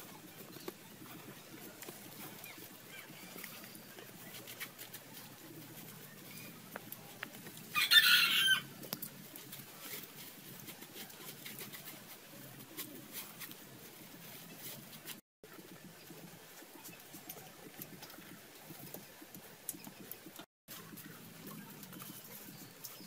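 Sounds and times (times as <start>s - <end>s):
hands scraping dry soil: 0.0s - 23.0s
chicken calling: 7.7s - 8.7s.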